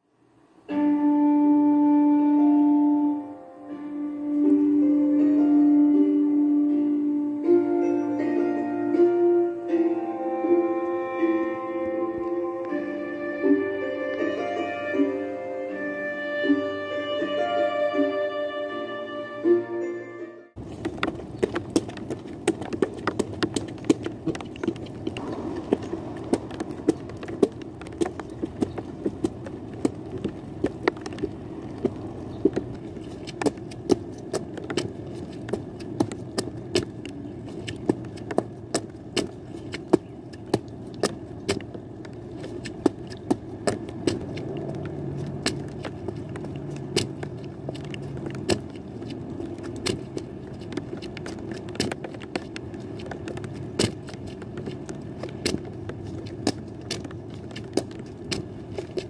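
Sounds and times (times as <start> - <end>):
raindrops ticking: 20.6 - 59.0
steady low rumble: 24.1 - 34.3.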